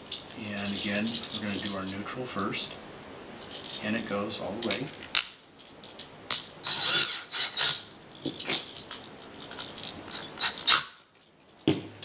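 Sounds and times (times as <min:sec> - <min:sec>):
screw clicks and rattles: 0:04.7 - 0:10.9
cordless drill whining: 0:06.6 - 0:07.9.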